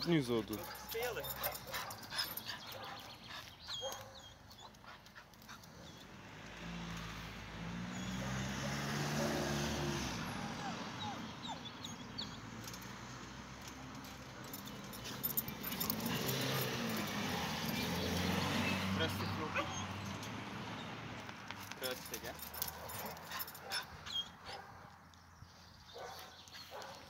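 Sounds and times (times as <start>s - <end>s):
car passing: 5.7s - 24.9s
dog whimpering: 10.3s - 12.1s, 19.5s - 20.0s.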